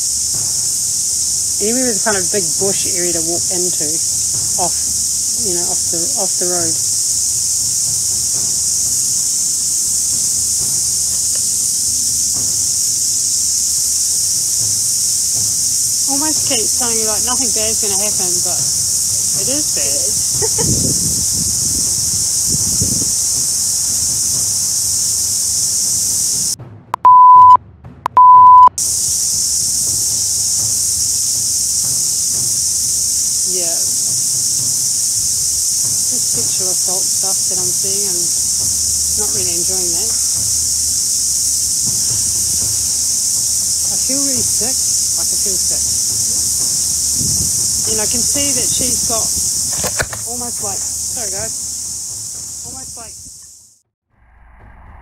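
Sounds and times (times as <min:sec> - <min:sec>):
insects chorus shrill hiss: 0:00.0 - 0:26.6, 0:28.8 - 0:53.8
electronic beeps: 0:26.9 - 0:28.8.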